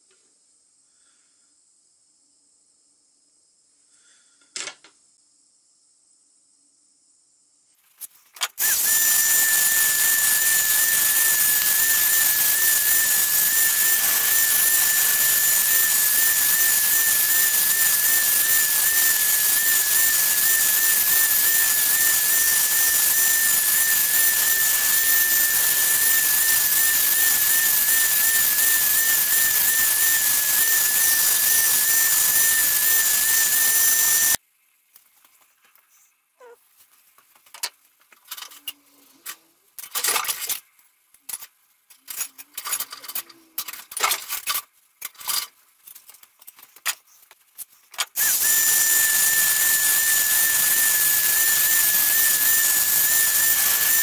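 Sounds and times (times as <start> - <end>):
drill clicks: 8.4 - 34.4, 48.0 - 54.0
drill motor whine: 8.5 - 34.4, 48.2 - 54.0.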